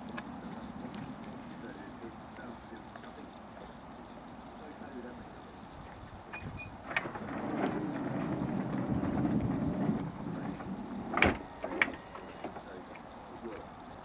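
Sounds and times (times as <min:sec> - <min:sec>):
door motor whirring: 0:06.4 - 0:12.7
door shutting thunk: 0:09.0 - 0:12.0.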